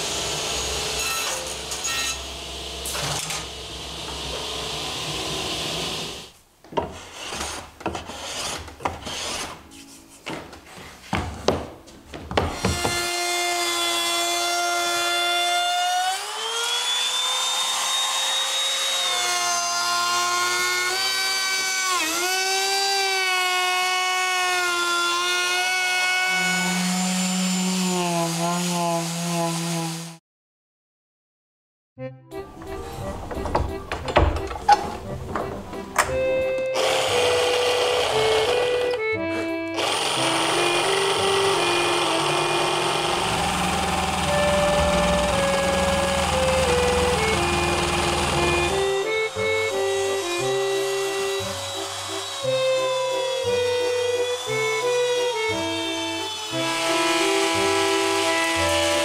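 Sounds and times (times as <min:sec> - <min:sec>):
router whining while cutting: 0:12.5 - 0:30.2, 0:36.1 - 0:59.0
panel saw humming: 0:32.6 - 0:59.0
sharp clicks and knocks: 0:33.2 - 0:36.2.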